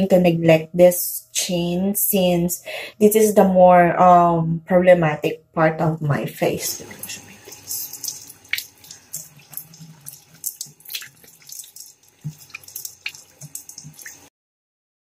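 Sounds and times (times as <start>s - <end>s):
faint running water: 6.2s - 14.3s
water splashing in sink: 6.5s - 14.3s.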